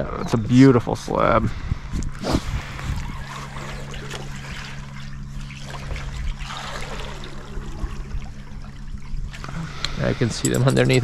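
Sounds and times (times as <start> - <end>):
steady low hum: 0.0 - 11.0
water trickling and sloshing: 2.4 - 11.0.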